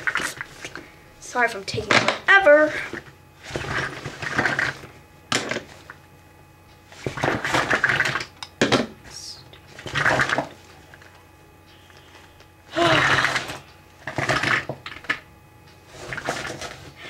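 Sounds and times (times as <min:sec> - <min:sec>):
makeup items rustling and clattering: 0:15.9 - 0:16.9.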